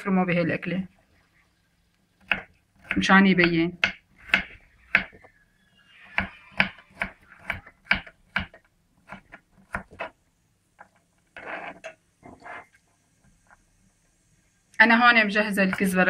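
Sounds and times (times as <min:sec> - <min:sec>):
knife scraping board: 0:11.3 - 0:12.8.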